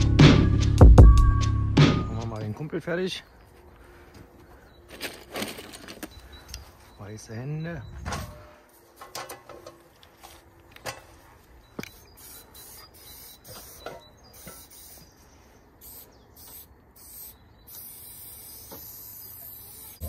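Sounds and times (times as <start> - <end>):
spray paint can hissing: 11.9 - 15.1, 15.8 - 20.0.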